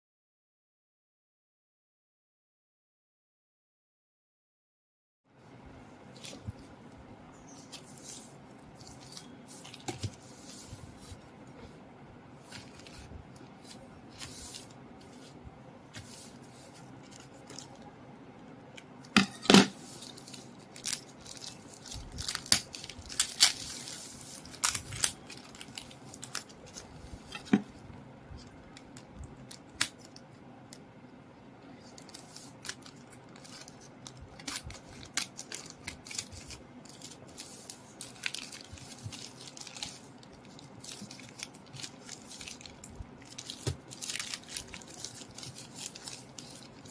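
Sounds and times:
plastic mailer crinkling: 0:19.8 - 0:27.6, 0:31.9 - 0:46.9.

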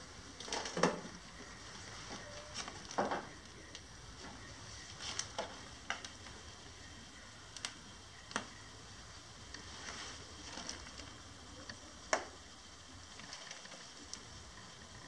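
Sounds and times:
faint steady hiss: 0:00.0 - 0:15.0
small clicks and ticks: 0:07.5 - 0:08.6, 0:10.5 - 0:15.0.

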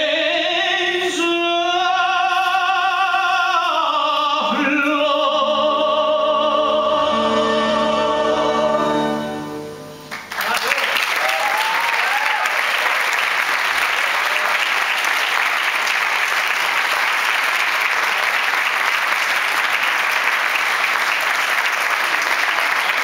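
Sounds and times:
audience applauding: 0:10.1 - 0:23.0.

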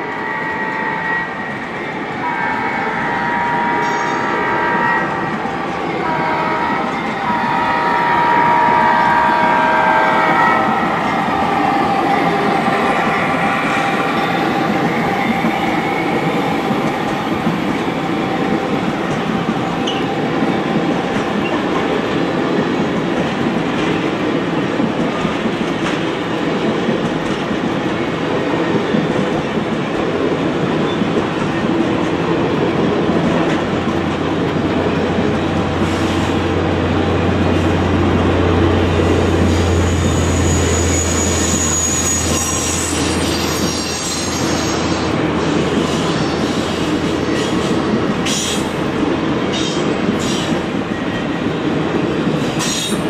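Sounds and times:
model train horn: 0:02.2 - 0:05.4, 0:06.0 - 0:10.7.

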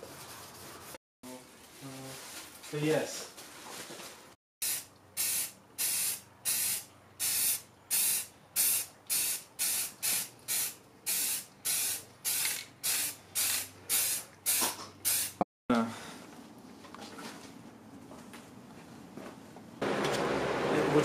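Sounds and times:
aerosol spray can hissing: 0:04.6 - 0:15.4.

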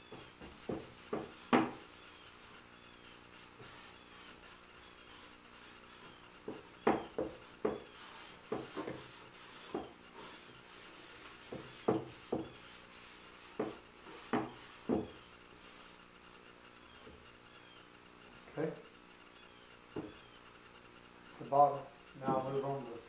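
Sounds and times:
paper towel rubbing wood: 0:00.0 - 0:16.0.

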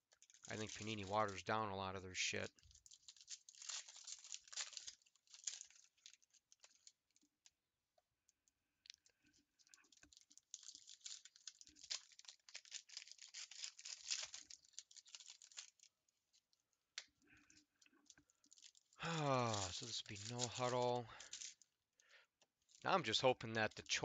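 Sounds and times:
wrappers crinkling and tearing: 0:00.0 - 0:01.6, 0:02.3 - 0:07.5, 0:08.9 - 0:21.7, 0:22.6 - 0:24.0.

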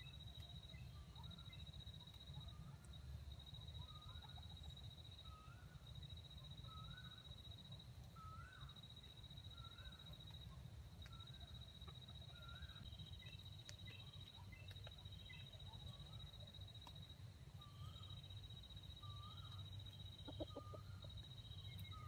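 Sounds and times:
bird call: 0:19.0 - 0:22.0.

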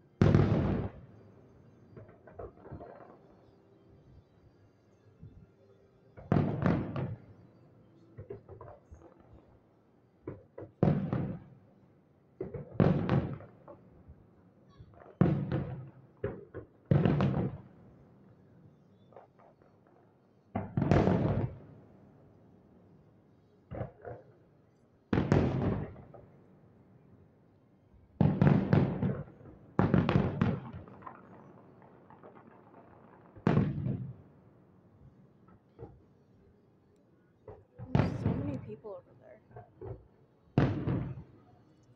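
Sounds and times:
fireworks booming: 0:00.2 - 0:01.0, 0:06.2 - 0:07.2, 0:10.3 - 0:11.5, 0:12.4 - 0:13.5, 0:20.5 - 0:21.6, 0:25.1 - 0:26.2, 0:28.2 - 0:34.4, 0:37.5 - 0:39.0, 0:39.6 - 0:41.3
fireworks popping: 0:28.2 - 0:34.2, 0:37.5 - 0:38.9, 0:39.5 - 0:41.9.

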